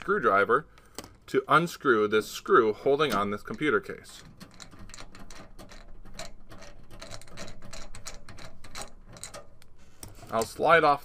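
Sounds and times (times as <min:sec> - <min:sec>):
screwdriver clicking on metal: 0:03.1 - 0:10.5.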